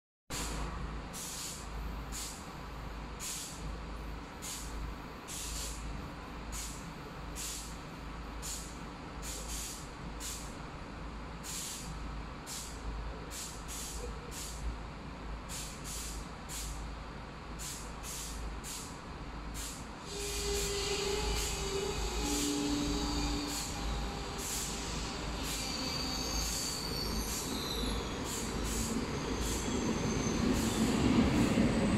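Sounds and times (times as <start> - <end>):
short hissing bursts: 1.2 - 2.5, 3.2 - 3.7, 4.4 - 5.8, 6.5 - 7.8, 8.4 - 10.5, 11.4 - 14.7, 15.5 - 16.8, 17.6 - 31.5.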